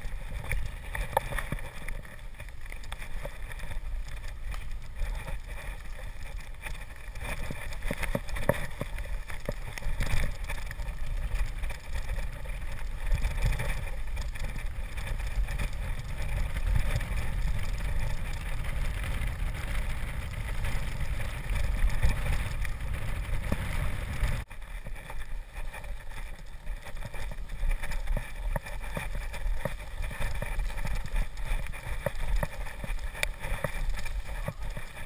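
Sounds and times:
bike knocking and rattling: 0.0s - 35.0s
rolling tyre noise: 0.0s - 35.0s
wind rushing on microphone: 3.3s - 24.5s.

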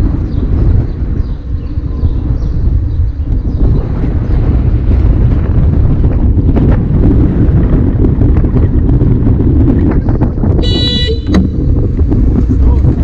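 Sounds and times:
car driving rumble: 0.0s - 13.0s.

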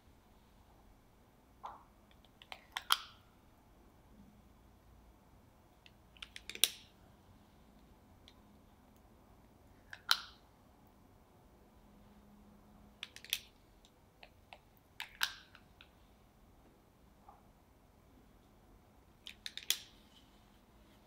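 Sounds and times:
cookie scoop clicking: 6.2s - 6.8s, 19.2s - 19.9s.

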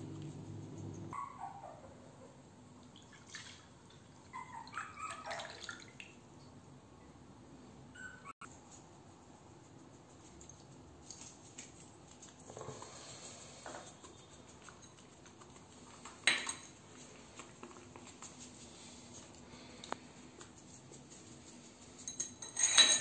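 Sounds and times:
china clinking on tile: 16.2s - 16.8s, 22.0s - 23.0s
china scraping on tile: 22.0s - 23.0s.

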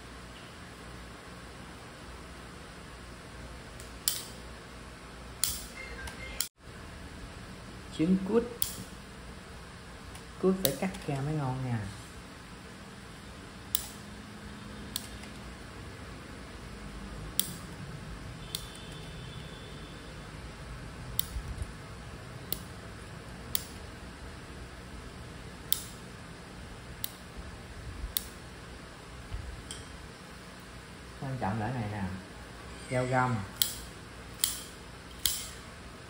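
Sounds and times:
scissors snipping: 33.6s - 35.6s.

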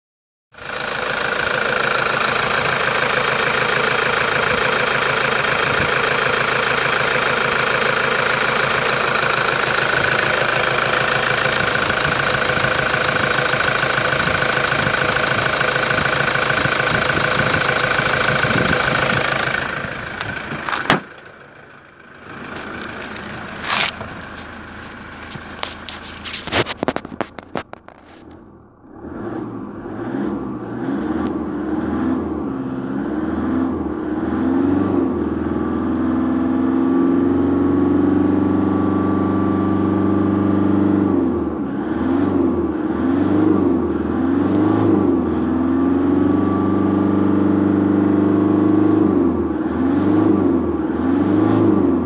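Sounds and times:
diesel engine idling: 0.6s - 29.0s
sharp clicks and knocks: 25.2s - 28.3s.

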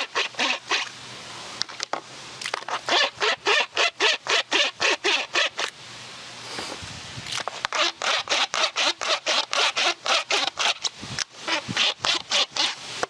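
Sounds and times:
wet brush scrubbing: 0.0s - 0.9s, 2.5s - 5.7s, 6.4s - 13.0s.

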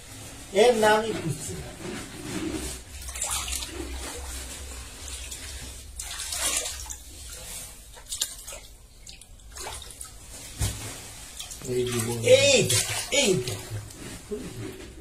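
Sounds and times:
water sloshing with writhing eels: 0.4s - 15.0s
sharp drips or slaps: 8.0s - 10.8s.

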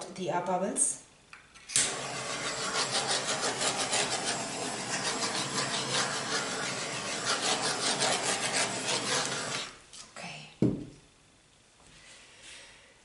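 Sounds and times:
torch flame hissing: 1.8s - 9.8s.

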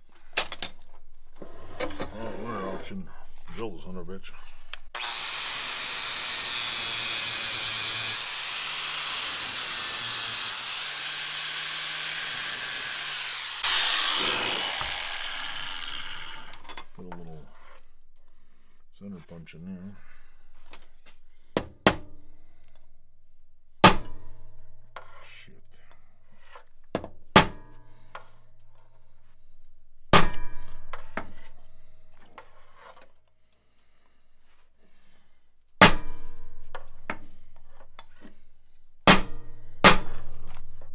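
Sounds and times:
angle grinder grinding metal: 4.8s - 17.9s
hammer striking steel punch: 23.8s - 24.2s, 35.8s - 36.2s, 39.1s - 40.2s.

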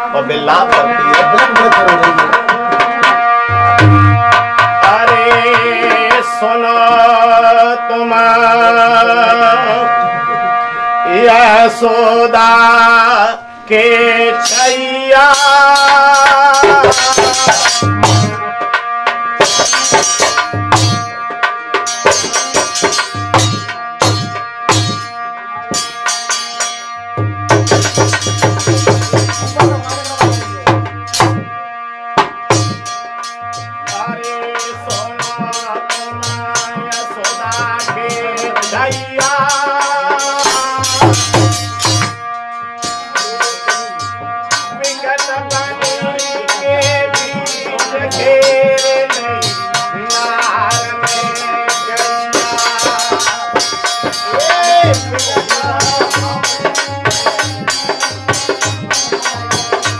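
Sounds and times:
man singing: 0.0s - 18.6s, 27.8s - 30.9s, 33.5s - 42.2s, 43.1s - 59.9s
harmonium chords: 0.0s - 59.9s
hand drum rhythm: 0.5s - 7.4s, 14.4s - 59.9s.

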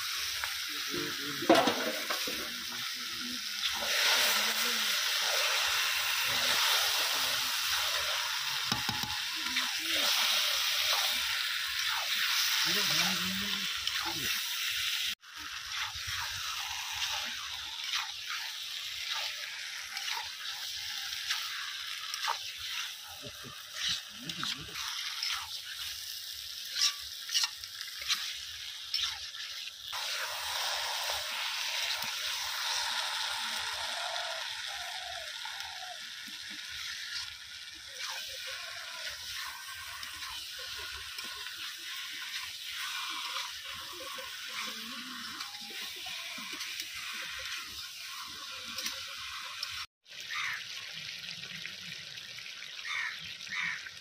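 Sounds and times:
chicken sizzling in oil: 0.0s - 54.0s
stirring scrapes and clicks: 26.7s - 29.2s.

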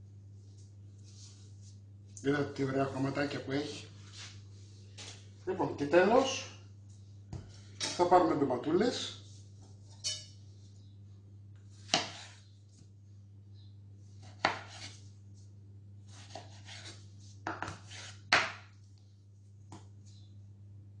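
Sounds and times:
knife cutting a tomato: 11.8s - 12.4s, 14.2s - 15.0s, 16.1s - 18.6s.

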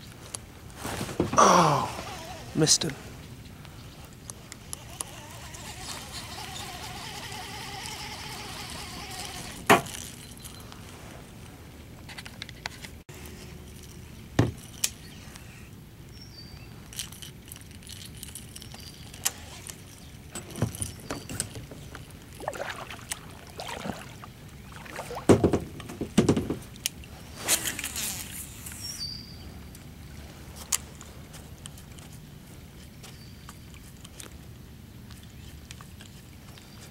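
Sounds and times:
water splashing: 22.3s - 25.5s
knocks on plastic kayak: 25.2s - 26.6s.

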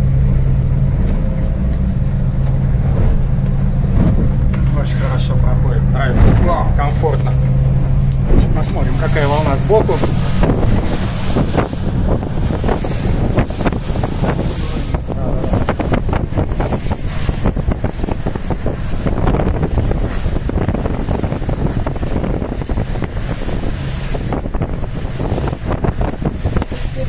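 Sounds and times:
motorboat hull slapping waves: 0.0s - 27.0s
wind buffeting microphone: 0.0s - 27.0s
spray rushing: 8.2s - 27.0s.

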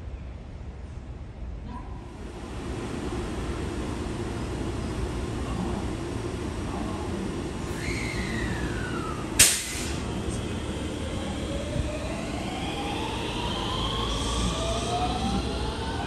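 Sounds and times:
falling whine: 2.2s - 16.0s
traction motors whining: 2.2s - 16.0s
train wheels rumbling on rail: 2.2s - 16.0s
loud sharp click: 9.4s - 9.9s.

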